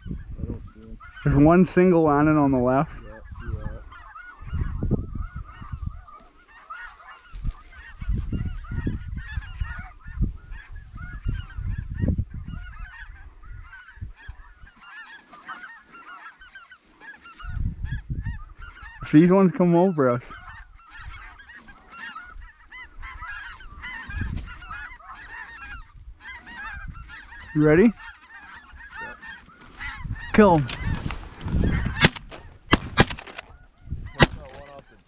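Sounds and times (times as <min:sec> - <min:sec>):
wind rumble on microphone: 0:00.0 - 0:06.2, 0:07.2 - 0:14.7, 0:17.4 - 0:19.1, 0:22.2 - 0:28.0, 0:29.7 - 0:34.7
snow geese calling: 0:00.0 - 0:35.0.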